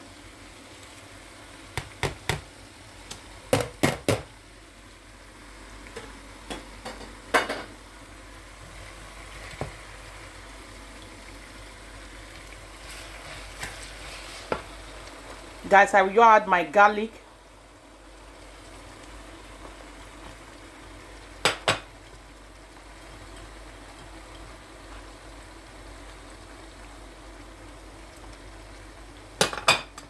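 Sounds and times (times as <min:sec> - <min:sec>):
onions and peppers sizzling in pan: 0:00.0 - 0:30.0
wooden spatula knocking on pan: 0:01.8 - 0:02.5, 0:21.4 - 0:21.9.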